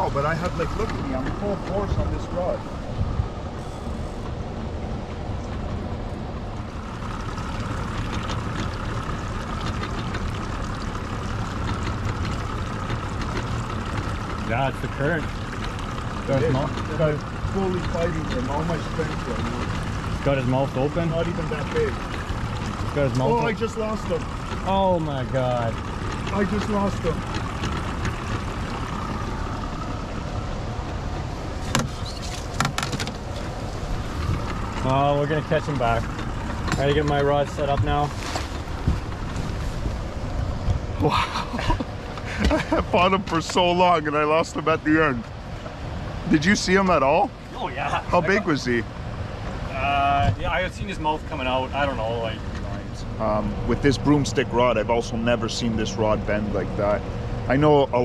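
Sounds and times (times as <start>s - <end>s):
gear knocking and clicking: 0.0s - 4.4s, 5.0s - 44.1s
low rumble: 0.0s - 58.0s
rushing water: 0.0s - 58.0s
small irregular splashes: 6.5s - 43.6s.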